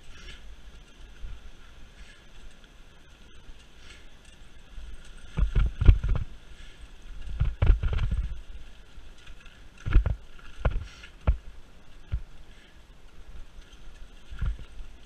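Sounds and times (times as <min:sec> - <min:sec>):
bike rattling over roots: 0:00.0 - 0:15.0
bike tyres hissing on trail: 0:00.0 - 0:15.0.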